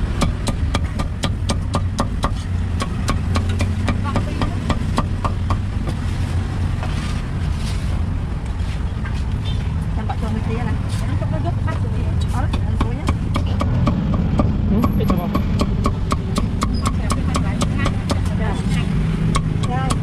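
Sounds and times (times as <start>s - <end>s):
steady low rumble: 0.0s - 20.0s
cleaver chopping on wooden block: 0.1s - 5.6s, 12.4s - 18.4s, 19.3s - 20.0s.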